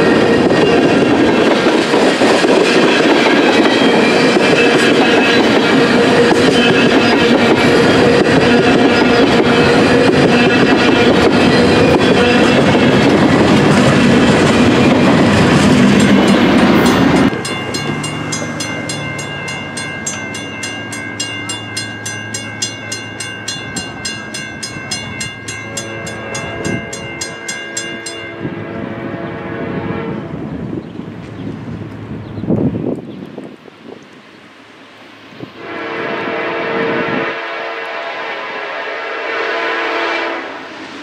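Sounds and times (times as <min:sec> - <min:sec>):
freight train wheels rumbling: 0:00.0 - 0:41.0
crossing bell ringing: 0:02.4 - 0:29.1
distant locomotive horn: 0:03.9 - 0:30.6, 0:35.6 - 0:40.8.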